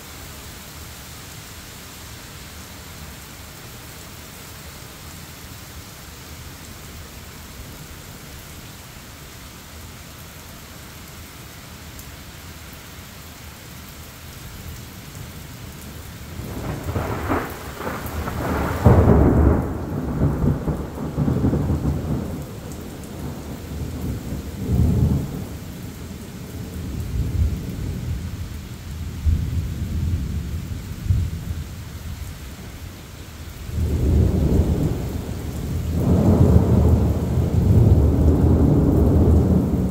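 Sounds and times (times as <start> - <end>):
rain hissing: 0.0 - 39.9
thunder rumbling: 16.3 - 25.6, 33.7 - 39.9.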